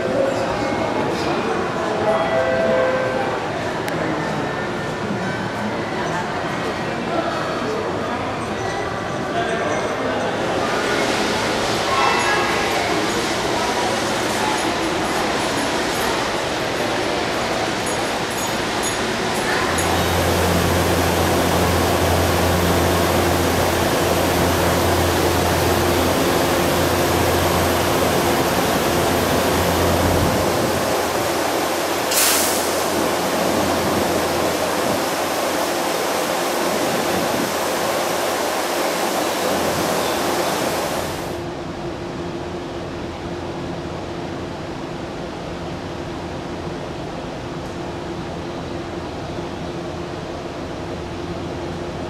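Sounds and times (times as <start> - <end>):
steady rushing noise: 17.7 - 42.0
low hum: 19.7 - 35.6
sharp hiss: 31.2 - 35.9.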